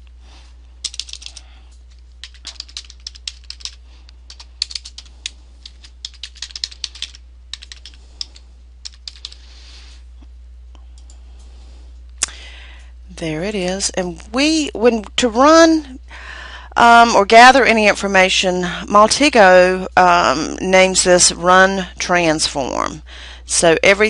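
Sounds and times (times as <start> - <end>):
steady low hum: 0.0 - 24.0
keyboard typing clicks: 0.8 - 1.4, 2.2 - 9.4.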